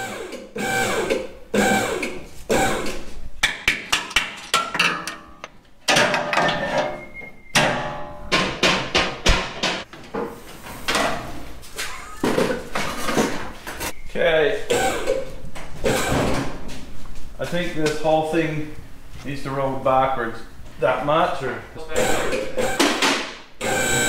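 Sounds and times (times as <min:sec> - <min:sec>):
metal clanks and knocks: 0:03.4 - 0:11.3.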